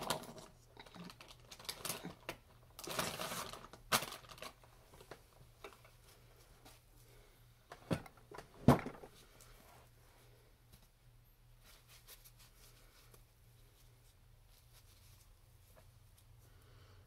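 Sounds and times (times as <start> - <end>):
tissue rustle: 9.1 - 16.5.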